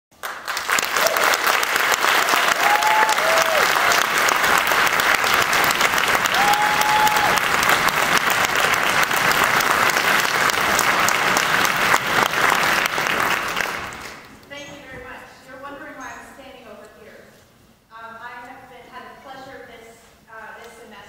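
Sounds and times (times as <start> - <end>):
audience applauding: 0.1 - 14.3.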